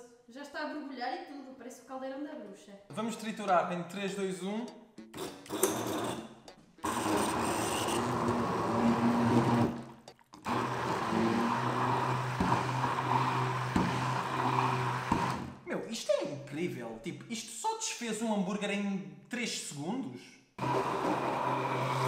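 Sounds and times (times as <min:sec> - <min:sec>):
stick blender running: 0:05.2 - 0:06.2, 0:06.8 - 0:15.6, 0:20.6 - 0:22.0.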